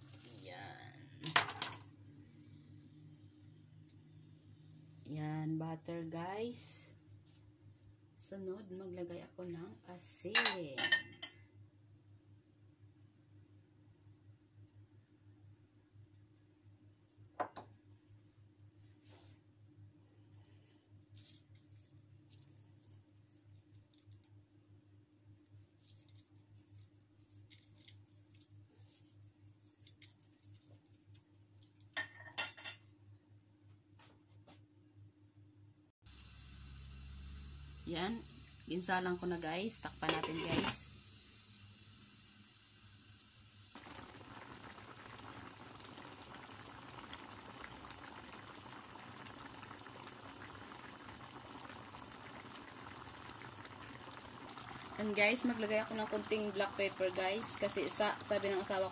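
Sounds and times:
broth bubbling in a pan: 0.0 - 5.0, 36.1 - 58.9
seasoning sprinkling ticks: 25.8 - 31.9
steady low hum: 35.6 - 46.8.

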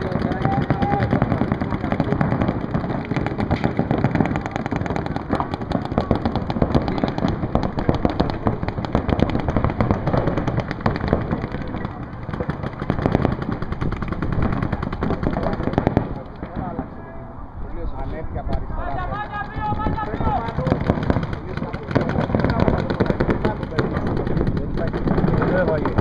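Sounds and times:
paintball markers firing rapidly: 0.0 - 16.7, 19.0 - 26.0.

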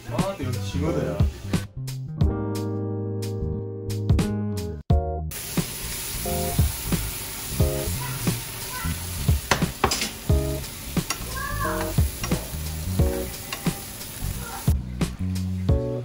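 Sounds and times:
prawns sizzling in a frying pan: 5.3 - 15.8
utensil clicking against pan: 9.4 - 10.3, 11.0 - 12.6, 13.4 - 13.8.

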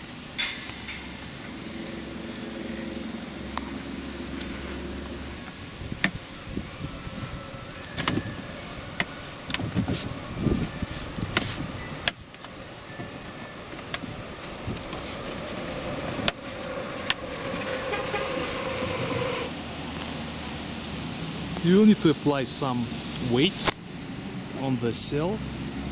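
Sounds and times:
street traffic hum: 0.0 - 25.9
hands rustling: 13.8 - 17.8.

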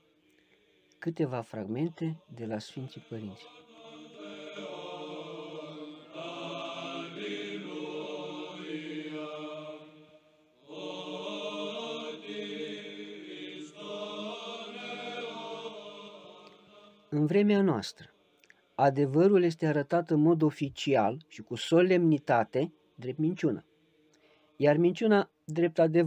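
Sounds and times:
voices chanting slowly: 0.0 - 17.4, 18.0 - 18.8.

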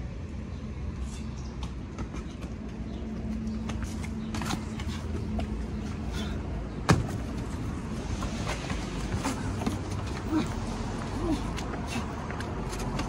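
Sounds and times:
footsteps and hand taps: 1.5 - 5.8
landing thud on dirt: 6.8 - 7.4.

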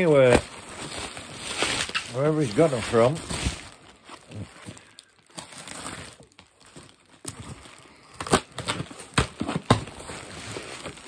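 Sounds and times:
packing material crinkling and tearing: 0.0 - 11.0.

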